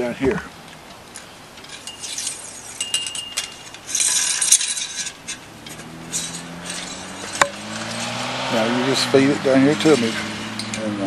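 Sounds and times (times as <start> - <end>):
wire scraping on metal fence: 1.0 - 10.9.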